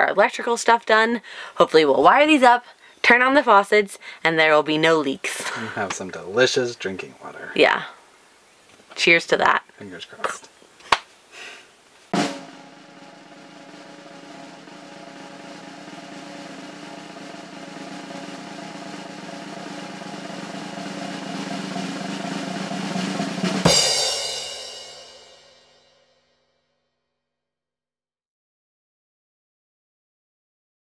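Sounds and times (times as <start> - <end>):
drum roll: 12.1 - 26.0
cymbal crash: 12.2 - 26.2.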